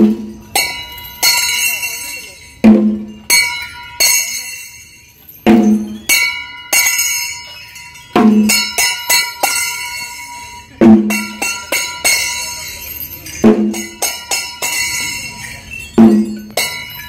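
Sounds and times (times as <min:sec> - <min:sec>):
bell strikes ringing: 0:00.0 - 0:17.0.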